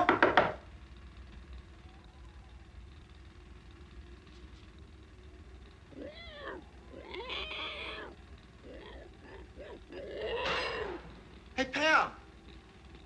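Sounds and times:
low hum: 0.0 - 13.0
meow-like squealing call: 5.9 - 11.0.

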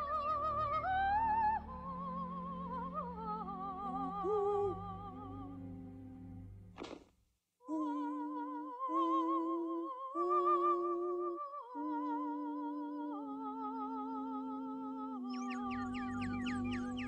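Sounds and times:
woman singing wordless notes: 0.0 - 5.9, 7.6 - 17.0.

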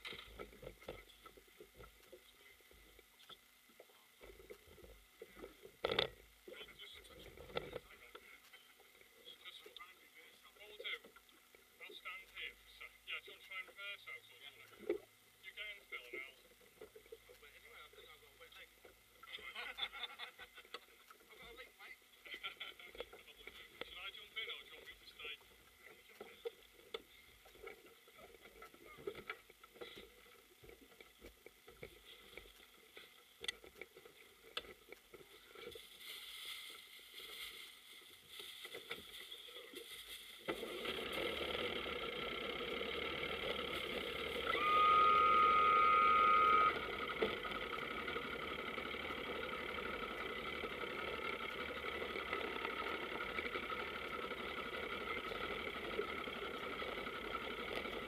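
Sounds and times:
powerboat engine idling: 40.6 - 58.0
loud steady beep: 44.5 - 46.8.

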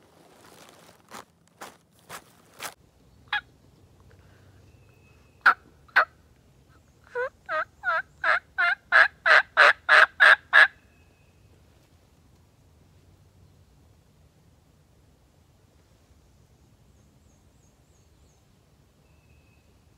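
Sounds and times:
turkey yelps: 7.1 - 10.8.

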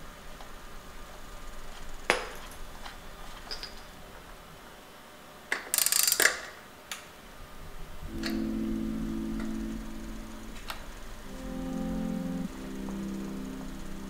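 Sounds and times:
metal clicks of bicycle parts: 5.5 - 7.0.

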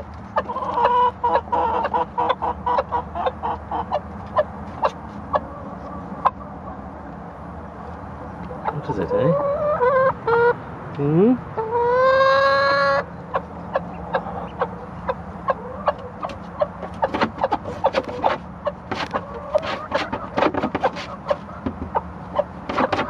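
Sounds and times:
duckling calling: 11.6 - 23.0.

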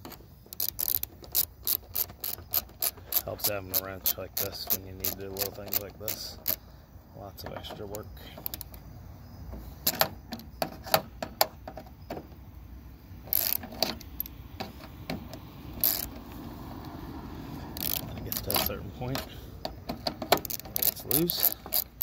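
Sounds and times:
ratchet clicking: 0.0 - 6.6, 13.2 - 17.0, 17.8 - 22.0
metal tools clattering and scraping: 17.8 - 22.0.

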